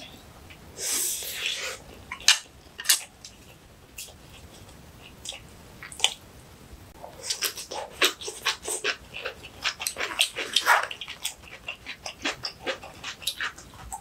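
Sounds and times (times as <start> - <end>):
crunchy chewing: 7.0 - 14.0.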